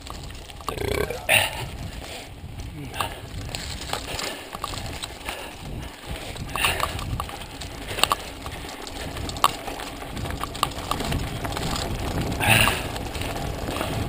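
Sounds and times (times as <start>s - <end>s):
bike chain and frame clicking: 0.0s - 14.0s
tyres rumbling on dirt trail: 0.0s - 14.0s.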